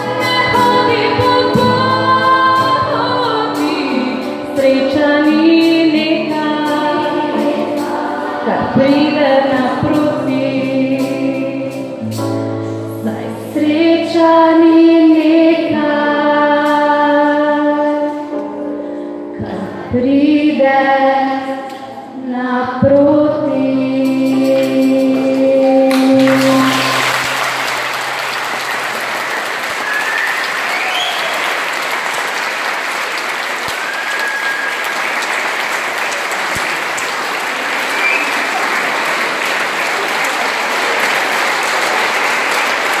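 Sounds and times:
children's choir singing: 0.0 - 12.1, 22.7 - 33.7, 34.3 - 43.0
keyboard accompaniment: 0.0 - 43.0
audience applause: 25.9 - 43.0.

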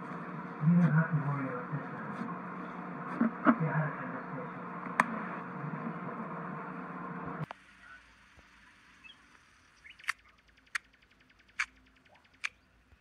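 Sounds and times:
soft clicks: 9.3 - 13.0.

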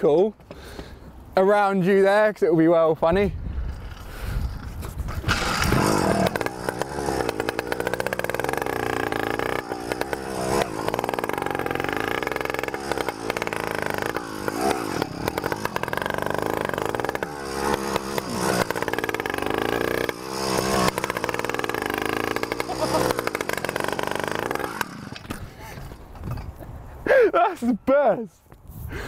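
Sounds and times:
small petrol engine revving: 5.1 - 25.6.

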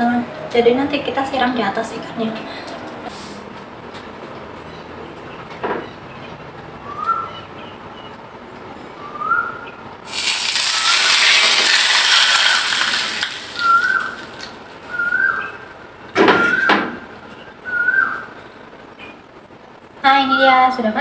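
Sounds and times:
hot oil sizzling: 10.0 - 15.0.

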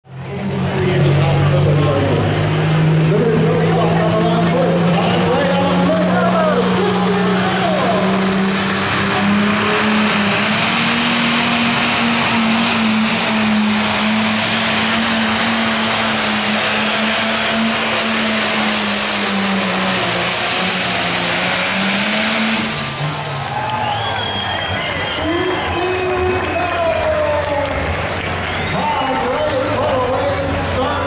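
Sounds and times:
tractor diesel engine under load: 0.0 - 31.0.

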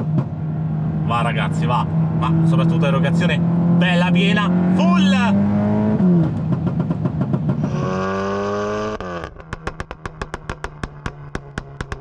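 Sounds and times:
exhaust pops and bangs: 0.0 - 0.4, 6.2 - 7.7, 9.2 - 12.0
car engine revving: 0.0 - 12.0.

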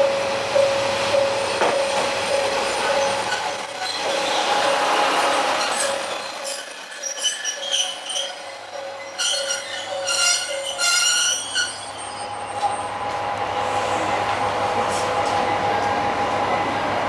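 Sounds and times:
train brakes squealing with hiss: 5.5 - 12.8.

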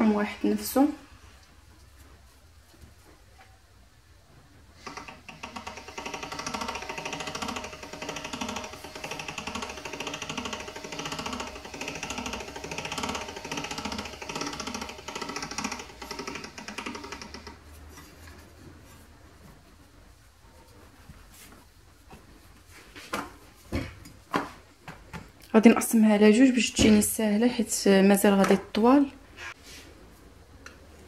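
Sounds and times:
pasta machine gears rattling: 4.8 - 17.6.

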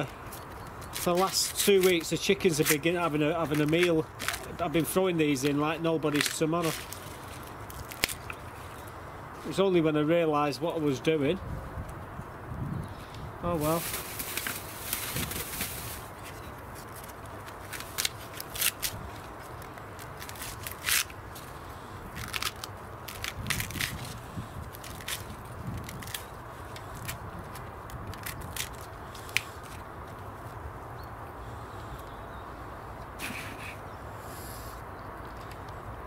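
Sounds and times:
corn husks tearing and snapping: 0.8 - 8.4, 16.8 - 29.9.

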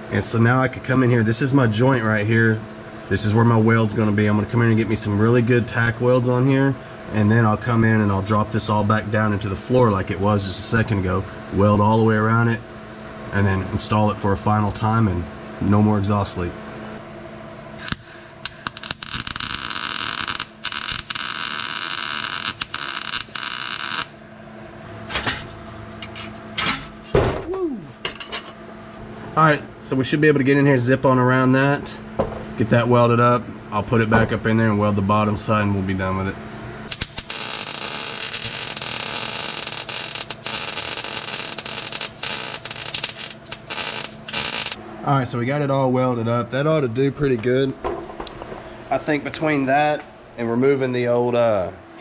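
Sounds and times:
welding arc crackling: 17.8 - 24.2, 36.9 - 44.8.

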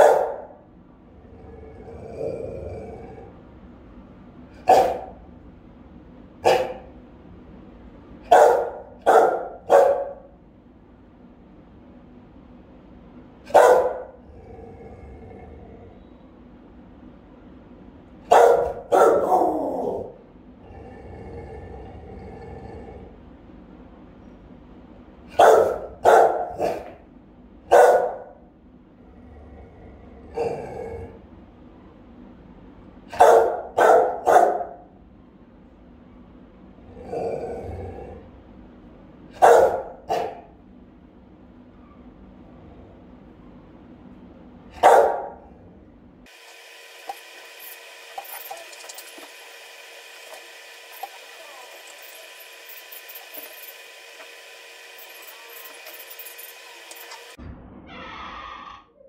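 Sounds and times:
dog barking indoors: 0.0 - 0.8, 4.5 - 5.4, 6.4 - 7.1, 8.2 - 10.4, 13.4 - 14.5, 18.2 - 20.3, 25.2 - 28.6, 30.3 - 31.2, 33.0 - 35.0, 39.3 - 40.7, 44.7 - 45.7, 50.3 - 57.4
steady electrical hum: 0.0 - 57.9.

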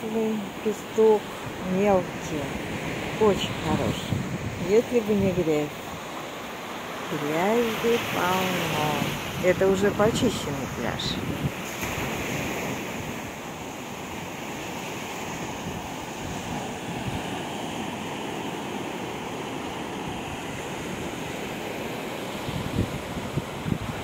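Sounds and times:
waves breaking on beach: 0.0 - 24.0
wind buffeting microphone: 1.3 - 6.1, 7.4 - 13.4, 15.2 - 18.0, 22.4 - 24.0.

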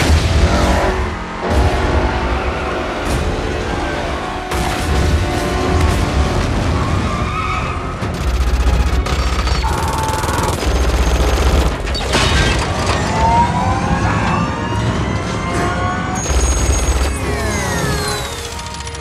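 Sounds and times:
dramatic orchestral score: 0.0 - 19.0
rapid heavy gunfire: 4.4 - 12.1, 16.2 - 18.7.

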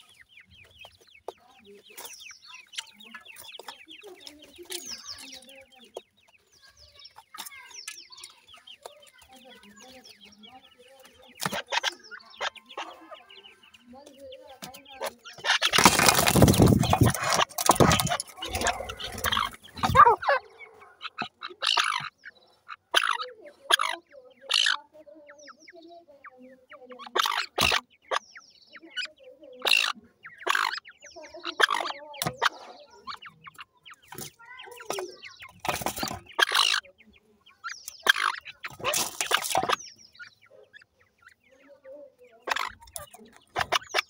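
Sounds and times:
bird chicks calling: 0.0 - 44.0
loud rustling and scraping: 15.1 - 20.1.

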